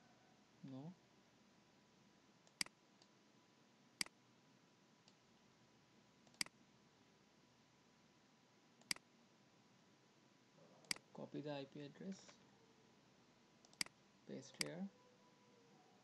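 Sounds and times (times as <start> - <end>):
computer mouse clicks: 2.4 - 3.1, 6.2 - 6.6, 8.8 - 9.1, 13.6 - 14.0.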